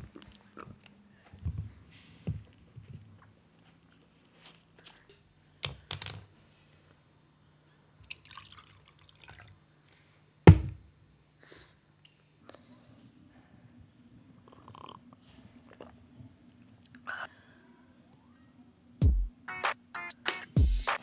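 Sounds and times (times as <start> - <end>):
liquid pouring into glass: 8.0 - 9.6
bottle set down on table: 10.5 - 10.8.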